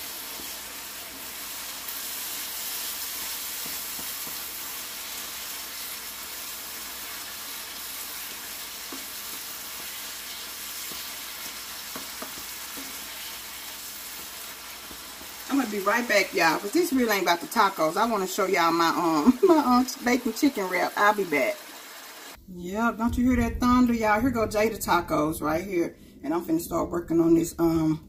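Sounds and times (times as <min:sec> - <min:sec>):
meat sizzling in a skillet: 0:00.0 - 0:22.4
spatula scraping: 0:08.2 - 0:15.5.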